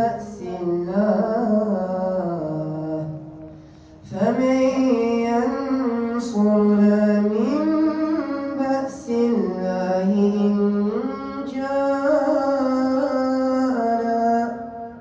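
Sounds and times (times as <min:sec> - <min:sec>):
boy reciting melodically: 0:00.0 - 0:15.0
breath: 0:03.5 - 0:04.0.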